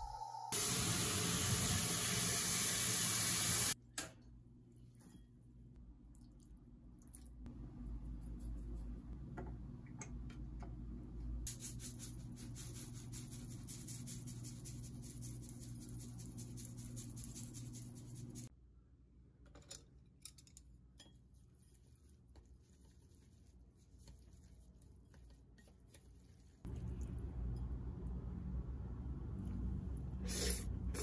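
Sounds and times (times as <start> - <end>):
seeds pattering from a shaker: 11.5 - 18.5.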